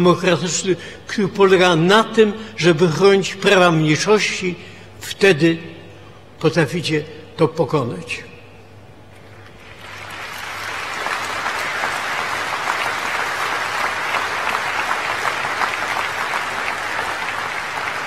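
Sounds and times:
large audience applauding: 9.6s - 18.0s.

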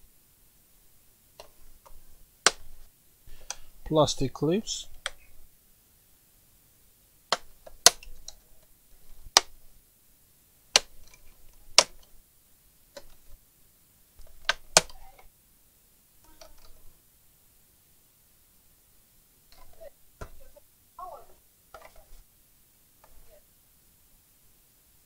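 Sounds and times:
plastic clips snapping: 1.4s - 2.8s, 7.3s - 8.4s, 9.0s - 9.6s, 10.7s - 12.2s, 14.2s - 15.2s.

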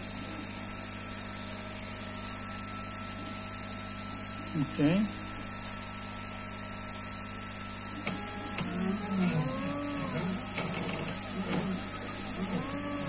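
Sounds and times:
air pump humming and hissing: 0.0s - 13.0s
stepper motors whining: 7.9s - 13.0s.

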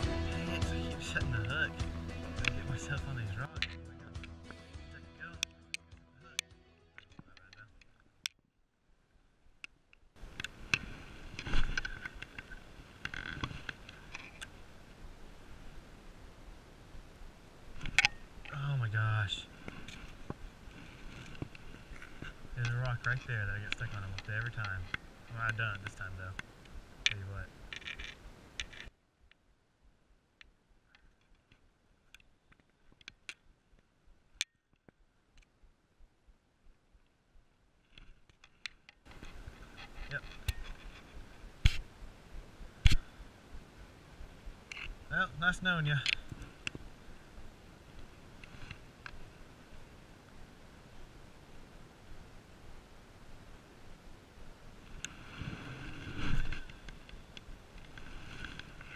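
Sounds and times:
rustling and handling noise: 9.6s - 14.8s, 17.7s - 29.4s, 37.8s - 41.9s, 54.8s - 58.9s.

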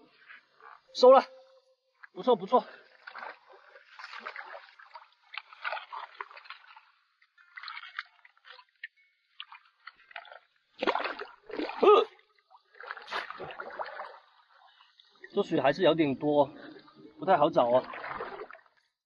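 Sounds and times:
water splashing and sloshing: 0.0s - 19.0s
heavy splashes: 2.4s - 6.8s, 10.8s - 14.2s, 17.2s - 18.6s.

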